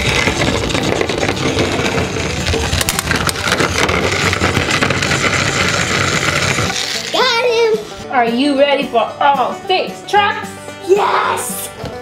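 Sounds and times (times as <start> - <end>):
plastic wheels rattling on track: 0.0 - 8.0
toy motor whirring: 0.0 - 8.0.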